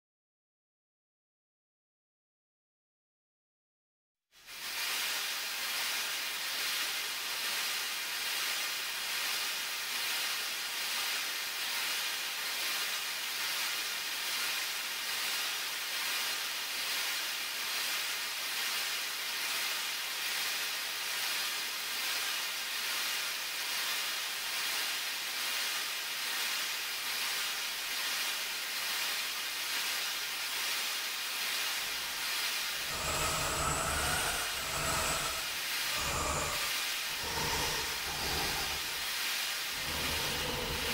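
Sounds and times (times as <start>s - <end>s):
hissing ambient drone: 4.5s - 40.9s
faint regular pulse: 32.8s - 40.9s.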